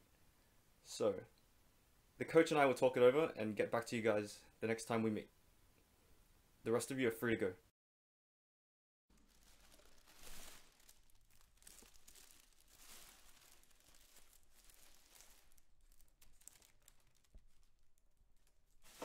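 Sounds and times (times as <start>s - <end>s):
plastic bag crinkling: 9.1s - 19.0s.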